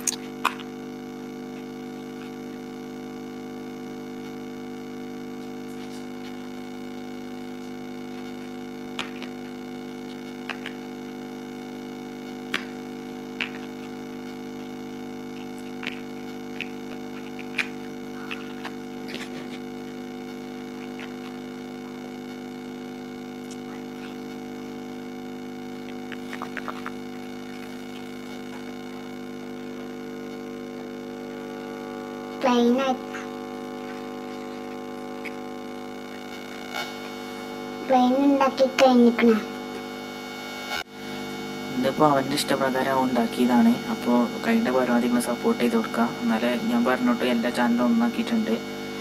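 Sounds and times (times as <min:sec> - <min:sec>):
steady electrical hum: 0:00.0 - 0:49.0.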